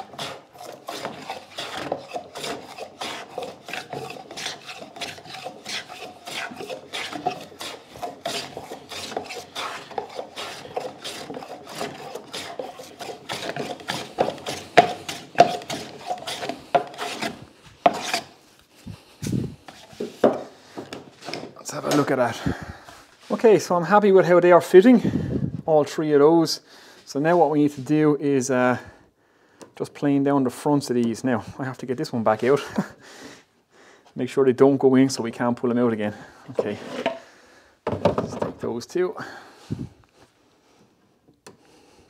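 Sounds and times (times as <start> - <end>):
hand plane shaving wood: 0.0 - 18.4, 36.6 - 37.2.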